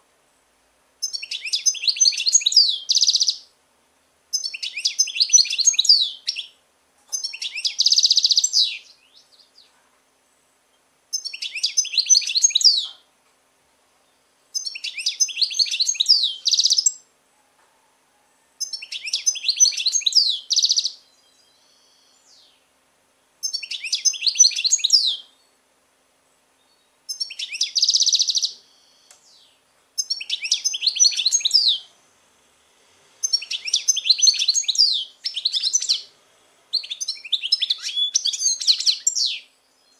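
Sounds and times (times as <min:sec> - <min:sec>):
bird twittering song: 0:01.0 - 0:03.5, 0:04.3 - 0:09.8, 0:10.7 - 0:13.1, 0:14.0 - 0:17.1, 0:18.6 - 0:22.7, 0:23.4 - 0:25.6, 0:26.6 - 0:31.9, 0:33.2 - 0:39.9.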